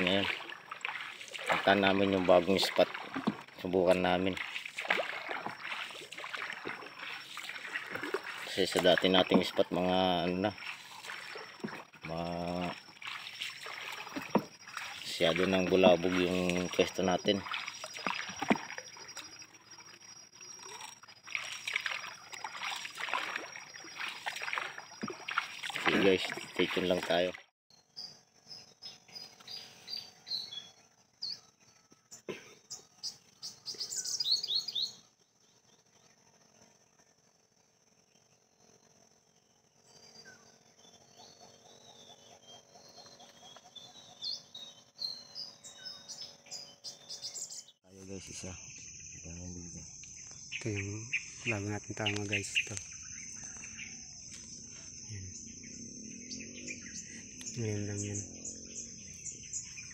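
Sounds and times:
birds chirping and calling: 0:00.0 - 0:19.9, 0:20.6 - 0:31.5, 0:32.1 - 0:35.1, 0:39.9 - 0:59.9
water splashing from paddling: 0:00.0 - 0:27.5
high insect drone: 0:00.0 - 0:59.9
upswept bird call: 0:32.0 - 0:35.0, 0:50.2 - 0:59.9.

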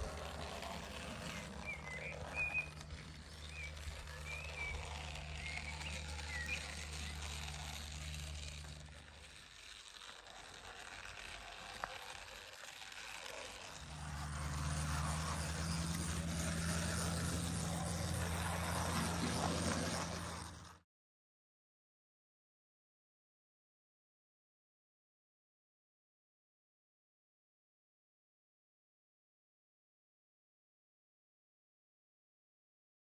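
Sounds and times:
model train motor humming: 0:00.0 - 0:20.8
bird chirps: 0:01.6 - 0:07.2.

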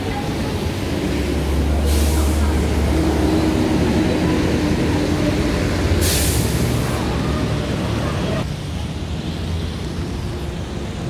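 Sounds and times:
vehicle engine rumbling: 0:00.0 - 0:11.0
short hisses: 0:06.0 - 0:06.6.

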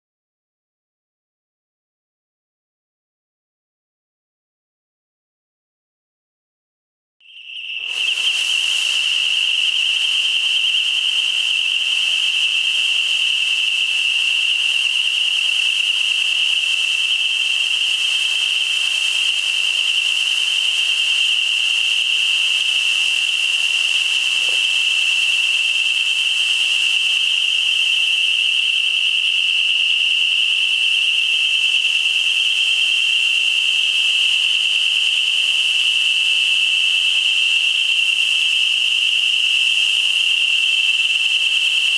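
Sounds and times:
high-pitched alarm tone: 0:07.2 - 0:41.9
fog generators hissing: 0:07.8 - 0:30.6.

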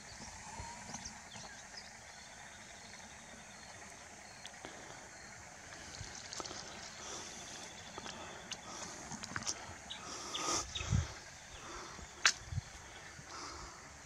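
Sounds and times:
low rumble: 0:05.1 - 0:14.0.

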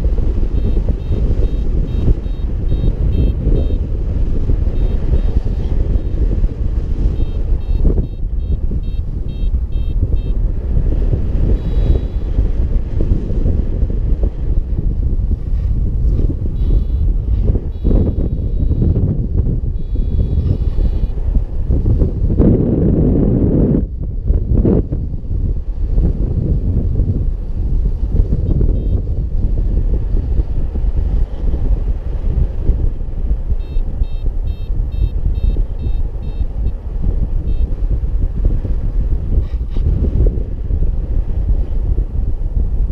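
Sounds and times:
wind buffeting microphone: 0:00.0 - 0:42.9
short high beeps: 0:00.6 - 0:03.8, 0:04.7 - 0:06.2, 0:07.0 - 0:10.4, 0:11.6 - 0:12.2, 0:16.6 - 0:17.1, 0:17.7 - 0:19.0, 0:19.8 - 0:21.2, 0:28.8 - 0:29.0, 0:33.6 - 0:36.5, 0:37.5 - 0:37.8.

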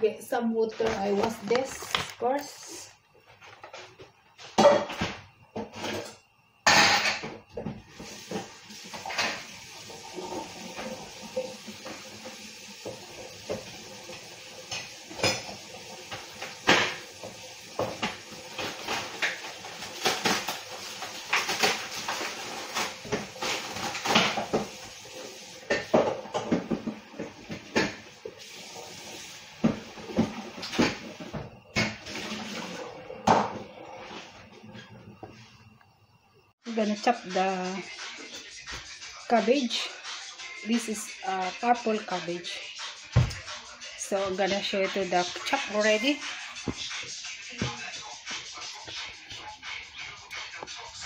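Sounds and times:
dishes clattering in sink: 0:03.4 - 0:13.8, 0:14.6 - 0:28.4, 0:29.6 - 0:33.8
running tap water: 0:07.6 - 0:33.9.

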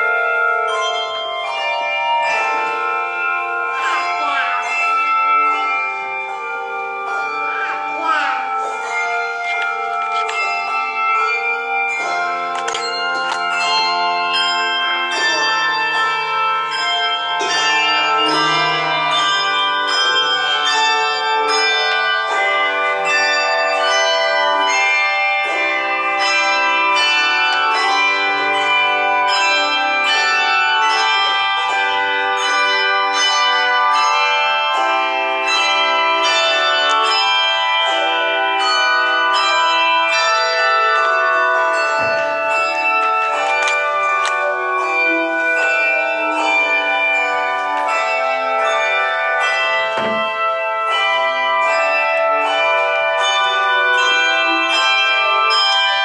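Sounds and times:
handbell choir playing: 0:00.0 - 0:56.0.

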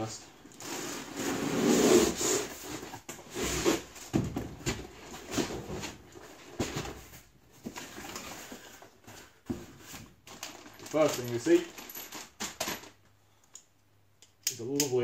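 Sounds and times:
cardboard scraping against cardboard: 0:00.6 - 0:04.0.

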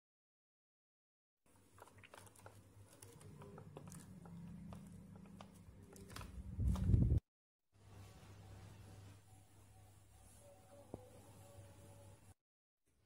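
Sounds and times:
plastic wrapper crinkling: 0:01.6 - 0:06.9.

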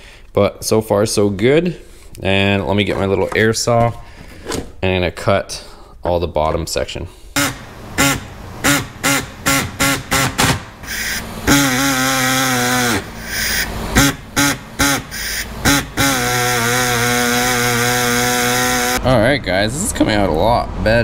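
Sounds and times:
pneumatic air saw buzzing: 0:07.4 - 0:19.0.

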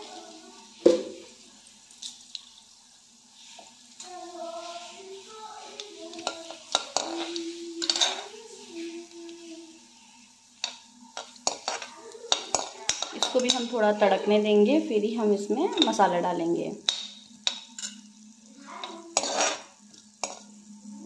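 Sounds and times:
seeds sizzling and popping in oil: 0:00.0 - 0:21.0
faint voice: 0:04.0 - 0:10.1, 0:11.8 - 0:13.2.

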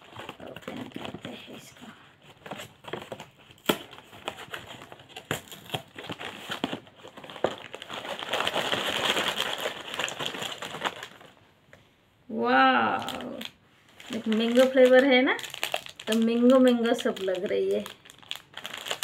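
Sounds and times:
plastic wrappers crinkling: 0:00.0 - 0:11.4, 0:12.8 - 0:19.0
cardboard box opening and tearing: 0:02.4 - 0:11.3, 0:18.1 - 0:19.0.

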